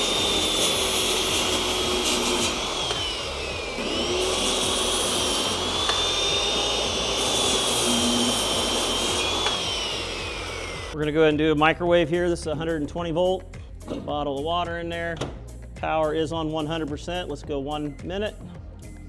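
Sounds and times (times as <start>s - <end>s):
circular saw cutting plywood: 0.0s - 11.0s.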